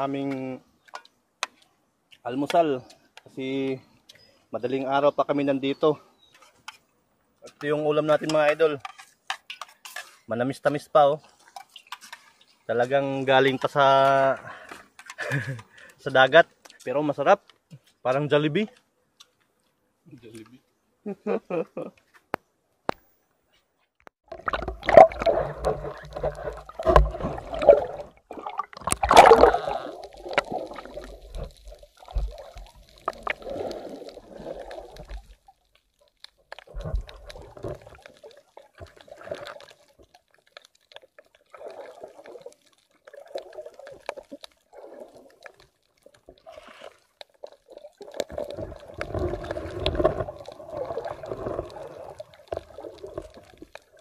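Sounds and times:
underwater bubbling: 24.2s - 54.0s
water gurgling and sloshing underwater: 24.2s - 54.0s.

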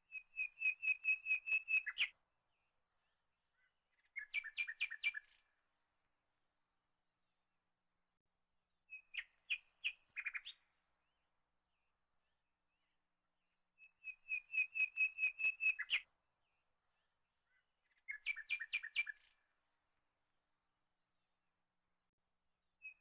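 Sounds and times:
bird chirping: 0.1s - 5.5s, 8.9s - 12.9s, 13.8s - 19.5s.

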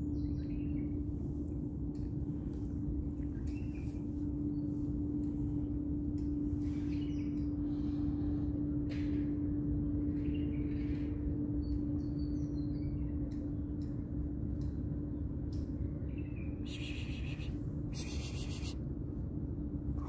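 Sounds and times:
low outdoor rumble: 0.0s - 20.0s
faint bird chirps: 16.6s - 18.8s.

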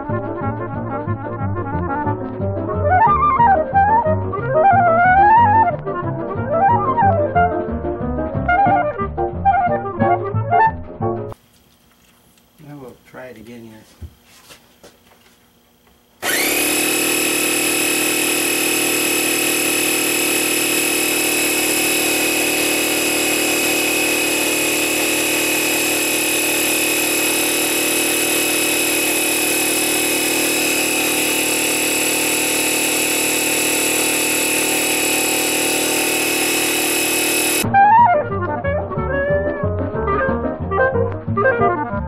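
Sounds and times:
air compressor running: 16.2s - 37.7s.

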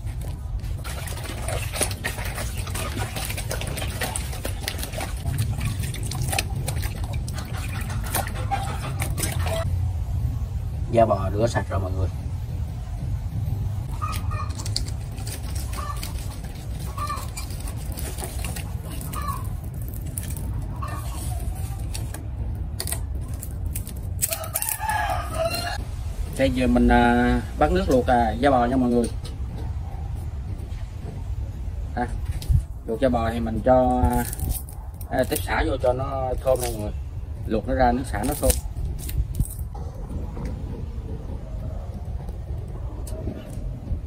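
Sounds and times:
water sloshing in steel bowl: 0.6s - 9.7s
low fire rumble: 3.3s - 44.0s
twigs snapping: 14.0s - 20.8s, 22.8s - 25.2s, 34.0s - 35.6s, 36.3s - 36.9s, 38.2s - 39.7s
wood fire crackling: 14.4s - 26.5s.

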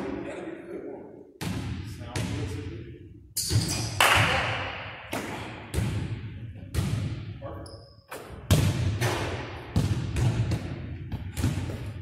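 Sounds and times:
basketball bouncing on hardwood floor: 9.7s - 12.0s.

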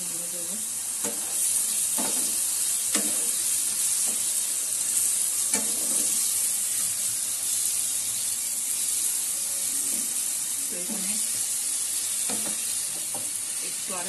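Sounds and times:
vegetables sizzling in a pan: 0.0s - 14.0s
wooden spatula scraping a pan: 5.5s - 6.3s.

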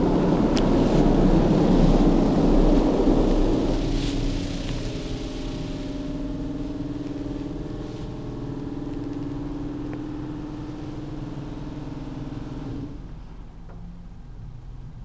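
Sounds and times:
water rushing against car body: 0.0s - 13.4s
car wash machine hum: 0.0s - 14.6s.

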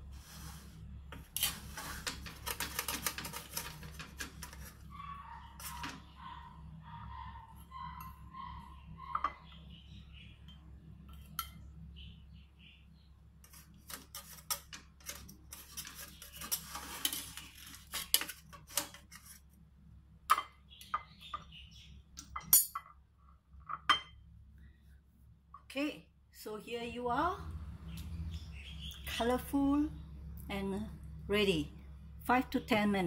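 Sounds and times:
metal utensil scraping metal tray: 0.1s - 4.9s, 5.5s - 6.1s, 13.5s - 19.4s.

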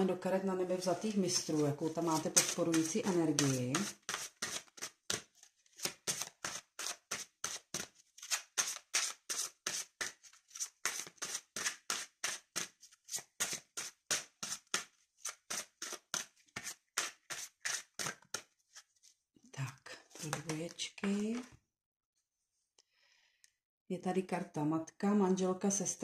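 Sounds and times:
cards being shuffled: 1.4s - 19.2s, 20.1s - 21.5s.

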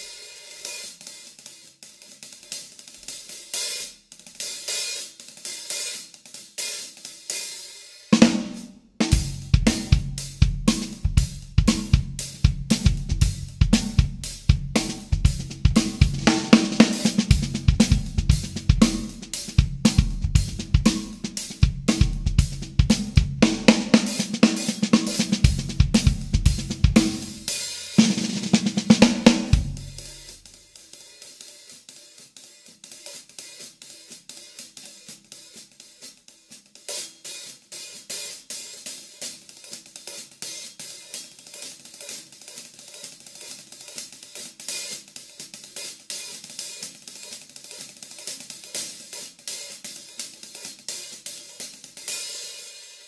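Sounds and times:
hi-hat cymbals: 0.0s - 53.0s
snare drum: 0.0s - 53.0s
bass drum: 8.2s - 30.5s.

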